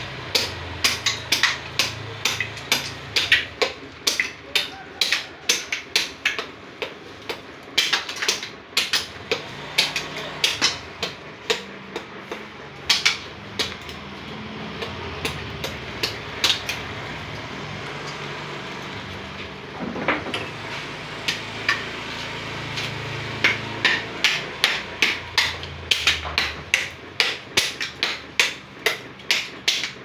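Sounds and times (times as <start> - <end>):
axe chopping coconut shell: 0.3 - 17.0, 22.8 - 30.0.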